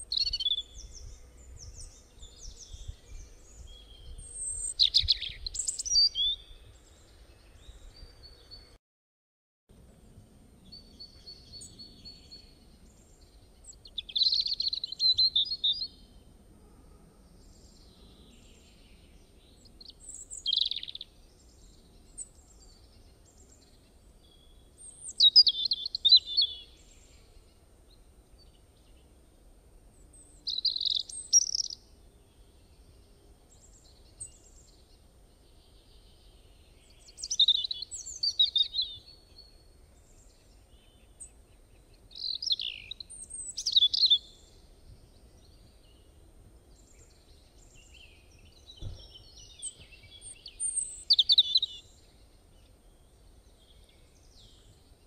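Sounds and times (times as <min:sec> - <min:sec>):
songbird chirping: 0:00.0 - 0:08.8, 0:09.8 - 0:16.5, 0:17.1 - 0:55.0.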